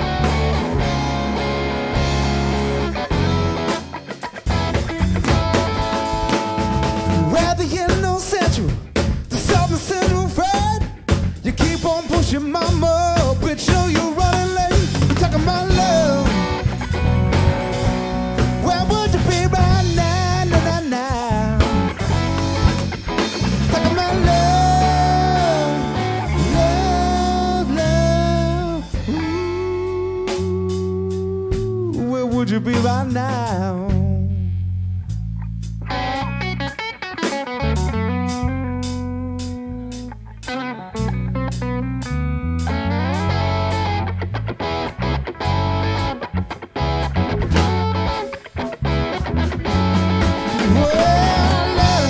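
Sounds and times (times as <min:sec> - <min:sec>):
drum kit beat: 0:00.0 - 0:34.4, 0:35.1 - 0:52.0
bass guitar: 0:00.0 - 0:52.0
electric guitar lead: 0:00.0 - 0:52.0.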